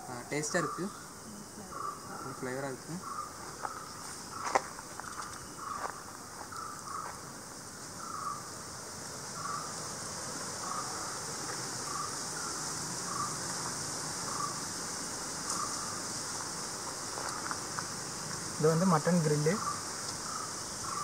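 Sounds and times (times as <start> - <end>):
high-pitched insect drone: 0.0 - 21.0.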